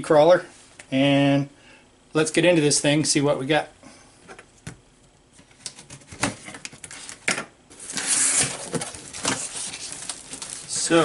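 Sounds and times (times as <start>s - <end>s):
packing tape ripping: 7.8s - 11.0s.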